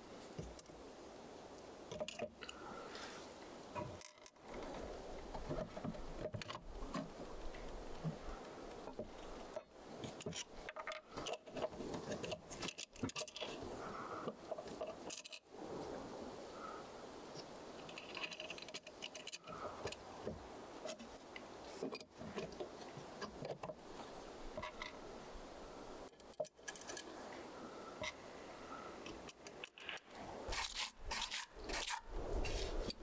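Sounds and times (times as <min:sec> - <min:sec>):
small metal parts clinking: 0:15.0 - 0:15.5.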